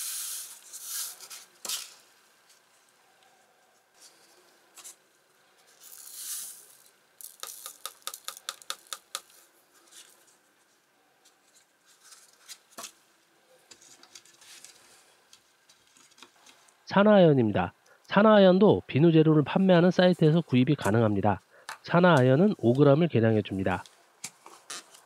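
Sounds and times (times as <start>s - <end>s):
hiss of poured flakes: 0.0s - 1.4s, 5.7s - 7.8s.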